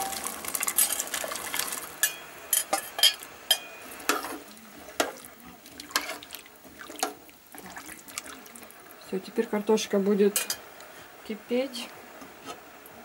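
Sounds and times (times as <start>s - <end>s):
potatoes splashing into broth: 0.0s - 2.1s, 4.0s - 8.8s.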